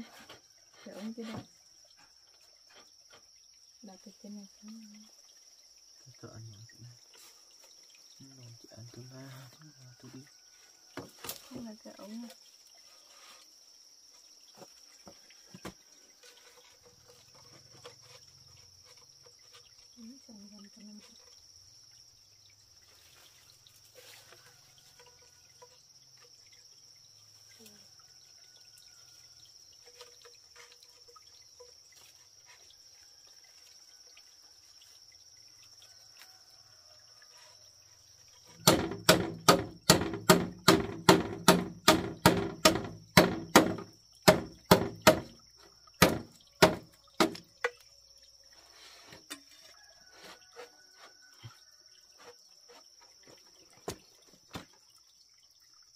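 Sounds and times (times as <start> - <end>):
high drone of insects: 0.0 - 55.9
blade chopping bamboo: 38.6 - 45.4, 46.0 - 47.4.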